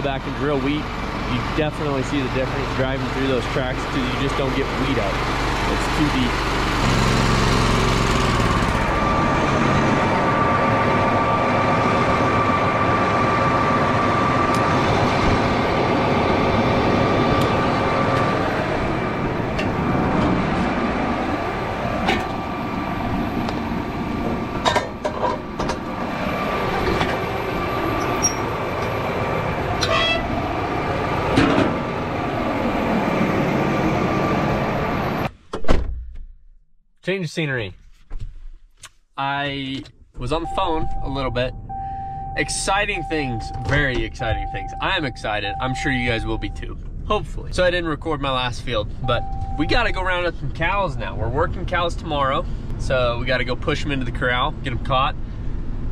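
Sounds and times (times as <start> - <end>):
engine-driven pump running: 0.0 - 35.3.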